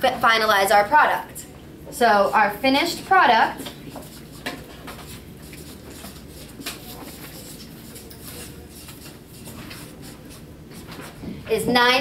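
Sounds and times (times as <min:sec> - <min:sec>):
marker scratching on paper: 0:03.6 - 0:11.2.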